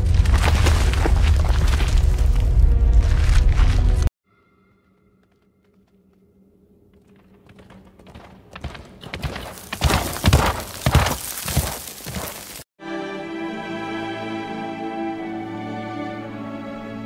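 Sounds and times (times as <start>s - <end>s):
rumble of many hooves: 5.2s - 12.6s
heavy thuds of hooves: 7.0s - 12.6s.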